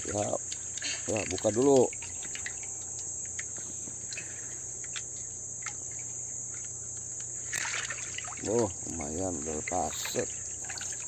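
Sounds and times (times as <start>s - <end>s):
insects droning: 0.0s - 11.0s
hands splashing in water: 7.5s - 11.0s.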